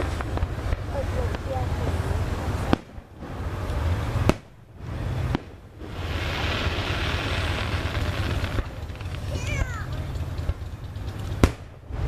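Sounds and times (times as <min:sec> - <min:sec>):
rushing hiss: 0:00.0 - 0:09.8
firework shell bangs: 0:03.7 - 0:12.0.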